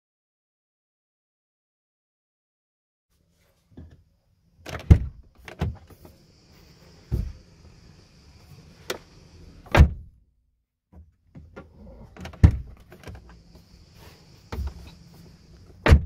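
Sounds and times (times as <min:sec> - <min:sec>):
car door latch clunking: 0:04.6 - 0:05.9, 0:09.6 - 0:10.1, 0:11.4 - 0:13.3, 0:15.7 - 0:16.0
faint high whine: 0:06.0 - 0:09.7.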